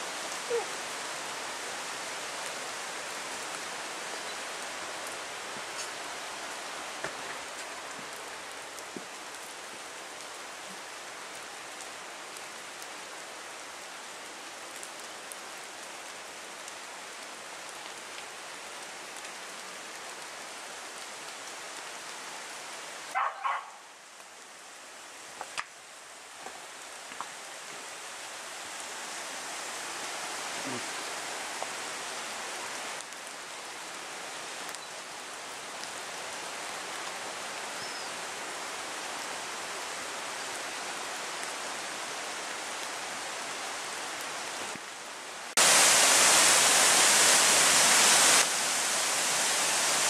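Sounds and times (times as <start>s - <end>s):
running water rushing: 0.0s - 50.0s
dog barking: 0.5s - 0.7s, 23.2s - 23.9s.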